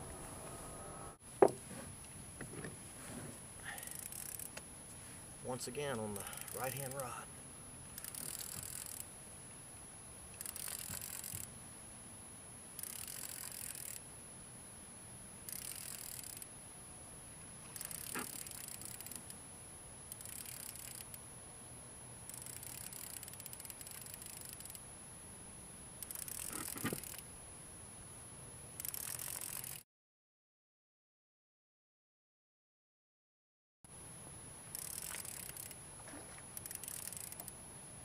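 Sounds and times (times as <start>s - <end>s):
fishing reel cranking: 3.6s - 4.6s, 6.2s - 7.0s, 8.0s - 9.1s, 10.4s - 11.5s, 12.8s - 14.0s, 15.5s - 16.5s, 17.7s - 19.4s, 20.1s - 21.2s, 22.3s - 24.8s, 26.0s - 27.2s, 28.8s - 29.8s, 34.7s - 35.8s, 36.6s - 37.6s.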